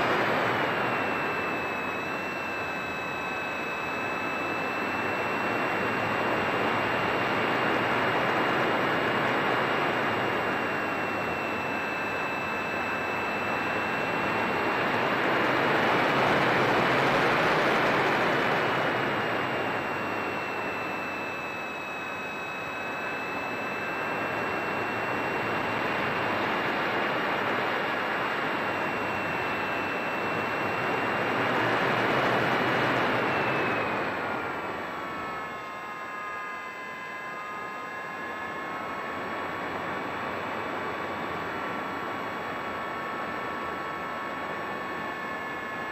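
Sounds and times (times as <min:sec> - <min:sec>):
model airplane motor whine: 0:00.0 - 0:42.5.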